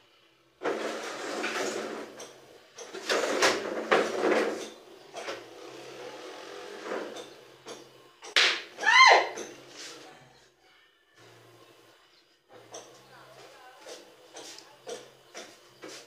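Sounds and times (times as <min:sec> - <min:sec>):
armchair scraping across floor: 0:00.6 - 0:07.3.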